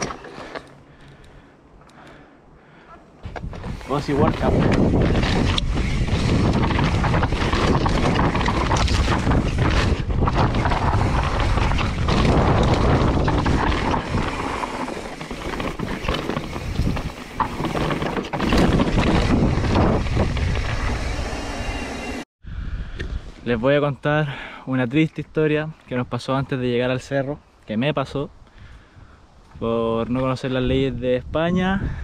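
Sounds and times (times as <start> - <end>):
bike knocks and rattles: 3.2 - 21.2
tyres crunching on dirt: 3.2 - 22.0
wind rushing over microphone: 3.2 - 23.4, 28.6 - 32.0.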